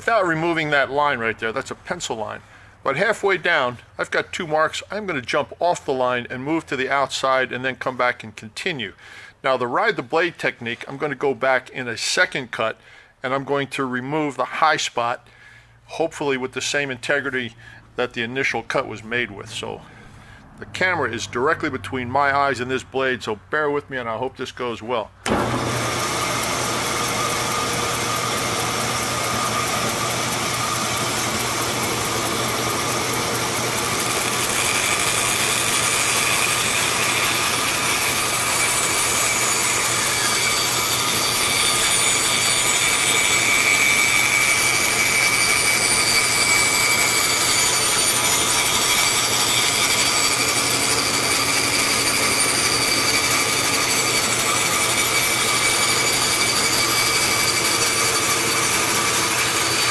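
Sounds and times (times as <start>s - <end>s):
bandsaw cutting wood: 25.2s - 59.9s.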